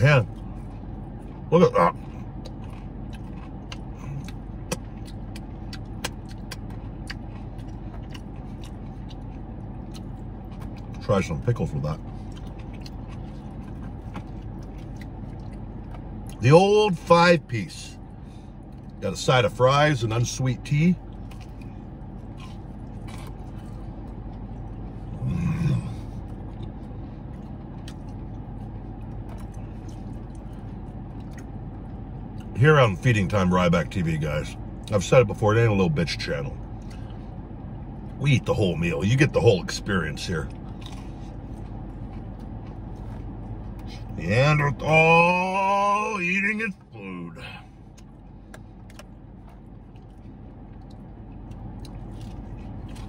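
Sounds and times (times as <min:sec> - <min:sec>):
car engine idling hum: 0:00.0 - 0:53.0
chewing and wet mouth smacks: 0:00.2 - 0:16.4, 0:21.0 - 0:25.2, 0:26.0 - 0:32.6, 0:40.4 - 0:44.2, 0:47.8 - 0:53.0.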